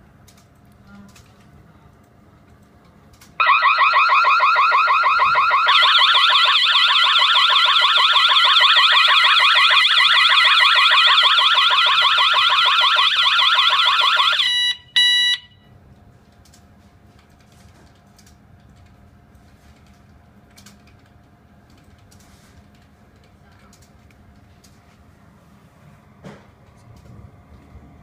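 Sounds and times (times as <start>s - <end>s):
alarm siren warbling: 3.4s - 15.4s
higher siren warble: 3.4s - 15.4s
short beeps: 14.4s - 15.7s.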